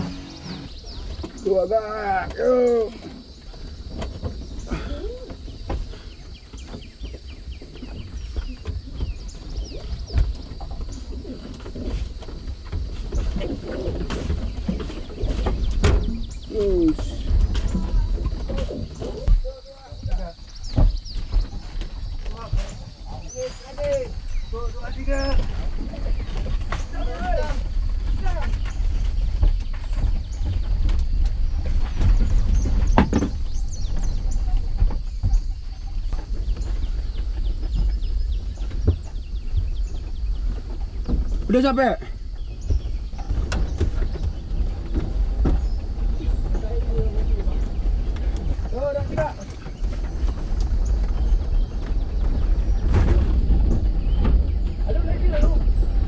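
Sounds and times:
minibus tyres rumbling: 0.0 - 2.7
van rolling on grass: 0.0 - 56.0.

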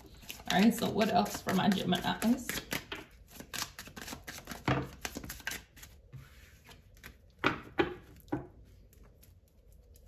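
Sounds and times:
cards being shuffled: 0.2 - 6.0.

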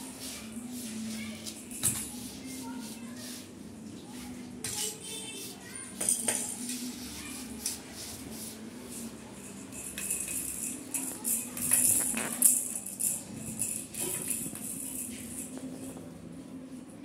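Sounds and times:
plastic baby rattles shaking: 9.7 - 15.8.

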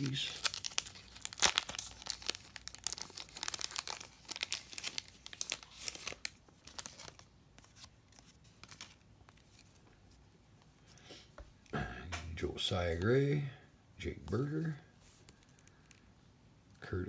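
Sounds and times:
plastic bag crinkling: 0.0 - 9.8.

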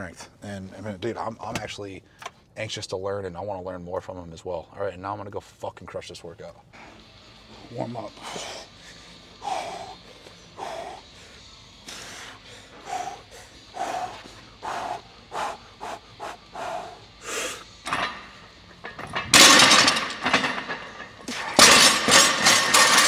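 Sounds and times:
bar and weight plates clattering: 17.8 - 23.0.

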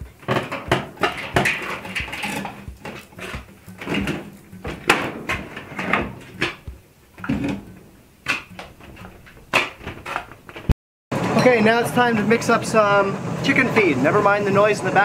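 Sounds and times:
steady low hum: 0.0 - 9.5
knocks and clatter of work: 0.0 - 12.2.

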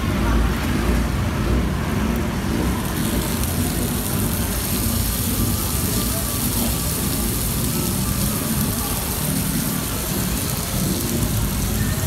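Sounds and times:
prawns sizzling in hot oil: 2.8 - 12.0.

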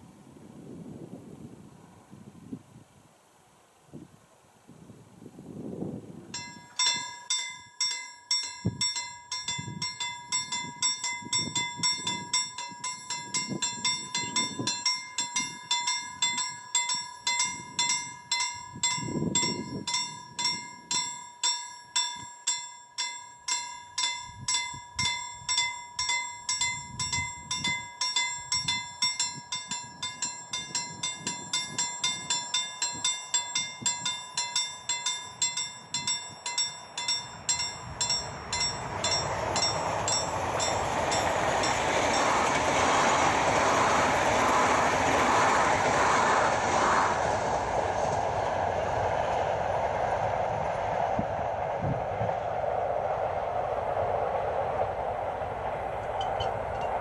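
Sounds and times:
level crossing warning bell: 6.4 - 43.6, 55.9 - 57.0.

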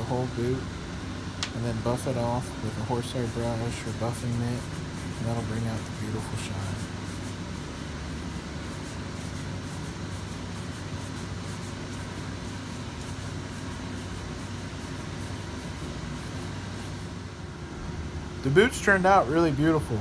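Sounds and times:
brush wheels buffing boot: 2.1 - 7.4.

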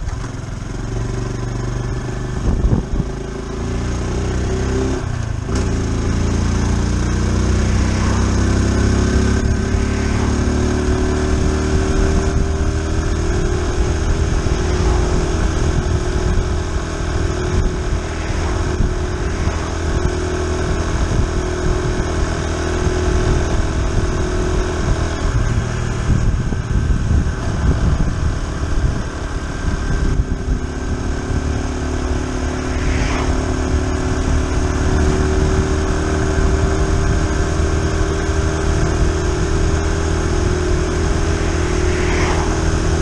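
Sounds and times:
motorcycle engine running: 0.0 - 43.0
wind noise: 0.0 - 43.0
cars passing: 3.8 - 24.2, 31.3 - 35.6, 40.1 - 43.0.

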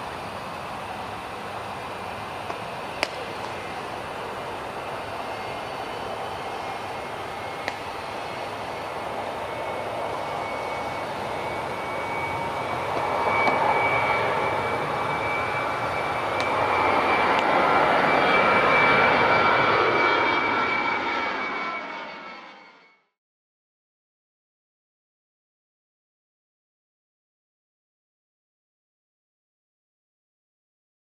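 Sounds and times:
jet airliner passing: 0.0 - 23.2.

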